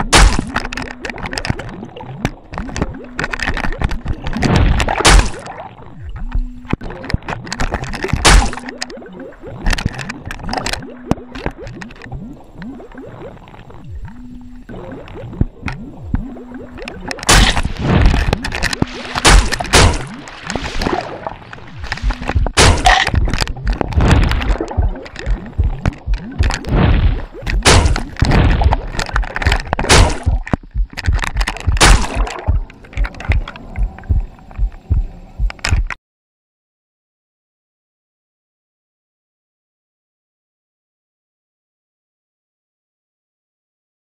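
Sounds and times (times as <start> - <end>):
sharp knocks and cracks: 0.0 - 1.6, 2.7 - 5.4, 7.6 - 8.7, 17.2 - 33.5
churning bubbling water: 14.7 - 34.7.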